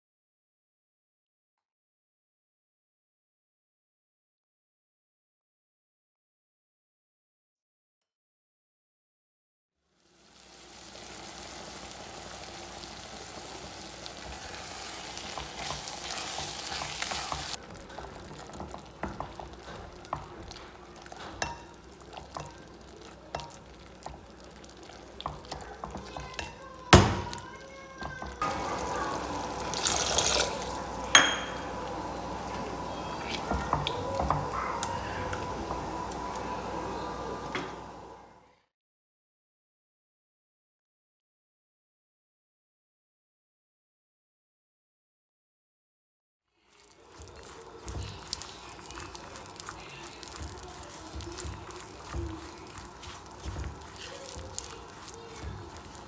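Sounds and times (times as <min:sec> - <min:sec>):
pot simmering with a hiss: 0:09.8 - 0:38.4, 0:46.5 - 0:56.0
masher squelching food: 0:10.4 - 0:37.5, 0:46.6 - 0:56.0.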